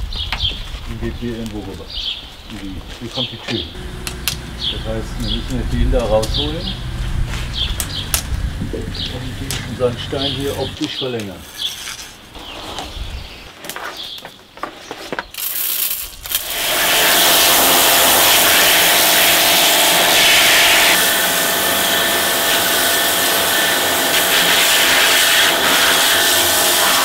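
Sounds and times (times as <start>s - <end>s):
faint machine hum: 3.7s - 10.8s
pressure washer jet on stone wall: 3.8s - 10.8s, 15.6s - 27.0s.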